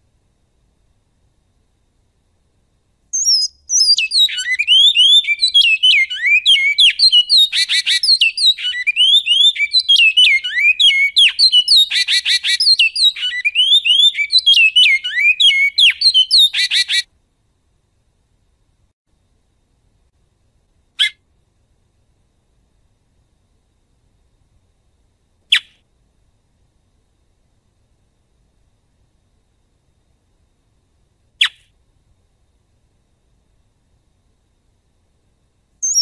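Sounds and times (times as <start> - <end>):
bird singing whistled notes: 3.1 - 17.1, 25.5 - 25.8
fast rattling bird trills: 3.2 - 17.0, 21.0 - 21.2.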